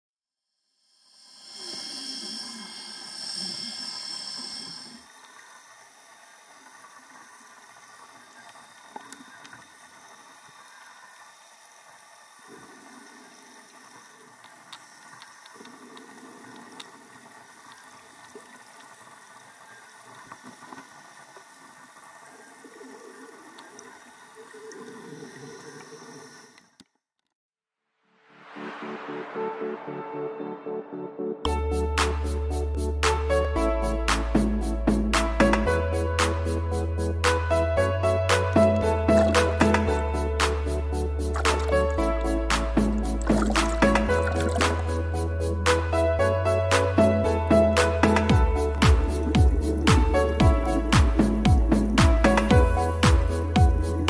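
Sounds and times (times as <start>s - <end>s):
underwater hiss: 0.8s - 26.7s, 38.8s - 45.8s, 47.8s - 54.0s
diver breathing through regulator: 1.0s - 5.2s, 48.6s - 54.0s
exhaled bubbles: 21.7s - 26.6s, 38.5s - 45.8s, 48.0s - 54.0s.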